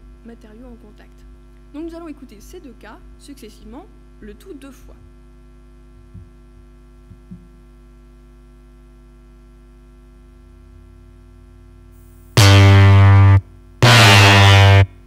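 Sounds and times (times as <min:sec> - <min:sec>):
electrical hum: 0:00.0 - 0:15.0
synthesized electric bass note: 0:12.4 - 0:15.0.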